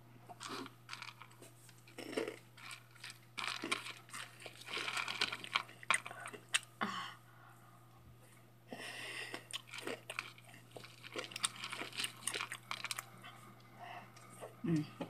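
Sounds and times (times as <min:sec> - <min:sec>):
faint low hum: 0:00.0 - 0:15.0
person chewing crunchy snacks: 0:00.3 - 0:06.7, 0:09.2 - 0:13.2.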